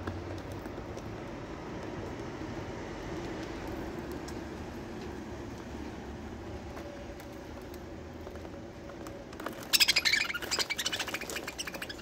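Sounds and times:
budgerigars squawking: 9.8 - 12.0.

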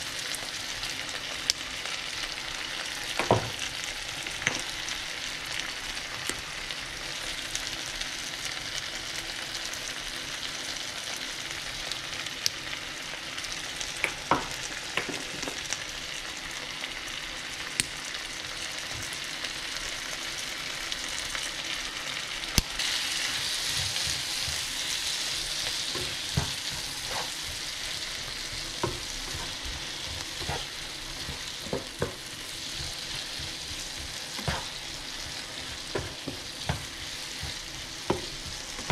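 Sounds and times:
vegetables sizzling in a frying pan: 0.0 - 38.9
spatula scraping a pan: 22.8 - 38.9.

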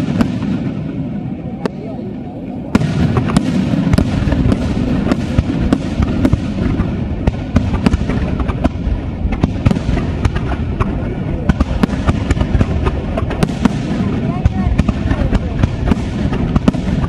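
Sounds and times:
fireworks rumble: 0.0 - 17.0.

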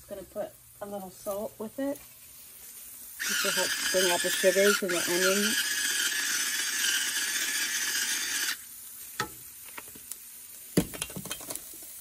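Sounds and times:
onions sauteing in skillet: 0.0 - 12.0
salt grinder grinding: 3.2 - 8.6.

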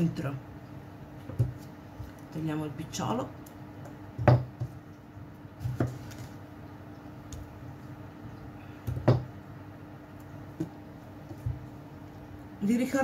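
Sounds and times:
knife knocking on wooden board: 4.2 - 4.8, 8.9 - 9.3.

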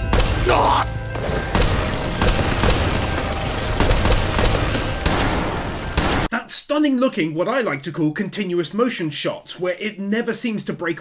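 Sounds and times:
booms: 0.0 - 6.3
music: 0.0 - 6.3
rapid gunshots: 1.4 - 6.3.

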